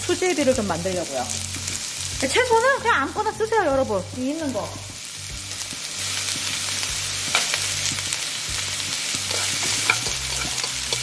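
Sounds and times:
vegetables sizzling in a pan: 0.0 - 11.0
utensil clicking against pan: 9.3 - 11.0.

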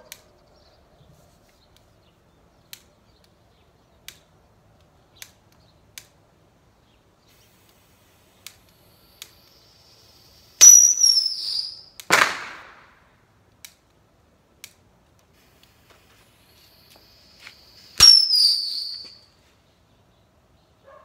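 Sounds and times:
fuse hissing: 7.2 - 11.8, 15.3 - 19.2
faint clicks: 7.3 - 9.7
rocket whistle: 9.5 - 12.0, 16.6 - 19.3
rocket bang: 12.1 - 13.0.

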